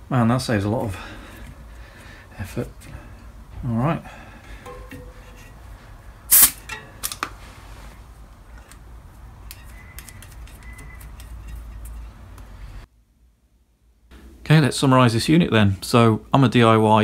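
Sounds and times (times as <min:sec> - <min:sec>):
fingers tapping at a valve: 0:04.6 - 0:05.2
sharp hiss of air: 0:06.3 - 0:06.7.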